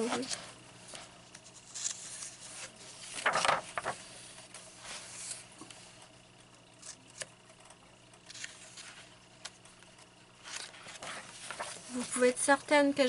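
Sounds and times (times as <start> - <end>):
paper page turning: 0.0 - 5.7, 8.2 - 9.7, 10.4 - 12.3.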